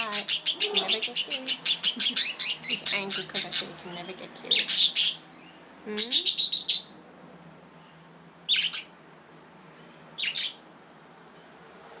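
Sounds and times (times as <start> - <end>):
budgerigars chirping: 0.0 - 7.0, 8.5 - 9.0, 10.2 - 10.6.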